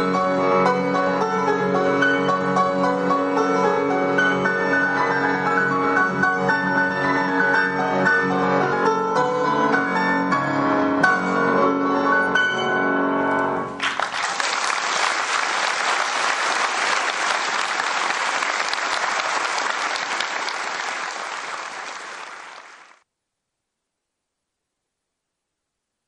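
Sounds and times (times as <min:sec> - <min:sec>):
audience applause: 0:13.8 - 0:23.0.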